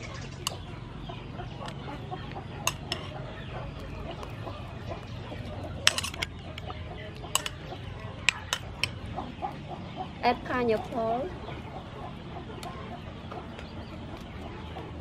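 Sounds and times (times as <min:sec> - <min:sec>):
chickens clucking: 0:00.0 - 0:15.0
metal spoon clinking on a bowl: 0:02.6 - 0:03.2, 0:05.8 - 0:09.0.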